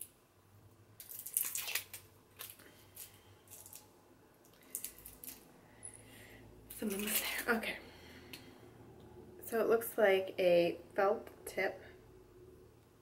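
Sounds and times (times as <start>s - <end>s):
packaging crackling rustle: 1.0s - 5.5s.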